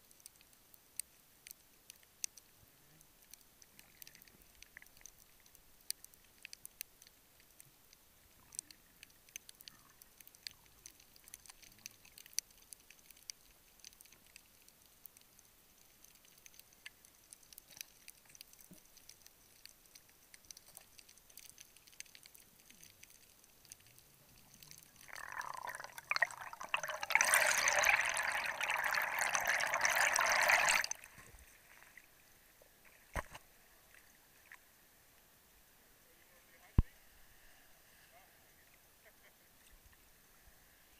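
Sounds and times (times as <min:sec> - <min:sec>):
faint underwater clicks: 0:00.0 - 0:35.3
rush of water and bubbles: 0:24.4 - 0:32.2.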